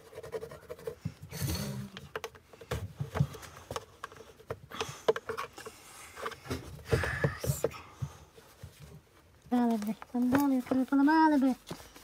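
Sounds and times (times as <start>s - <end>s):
tools and plastic parts clicking: 2.0s - 6.5s.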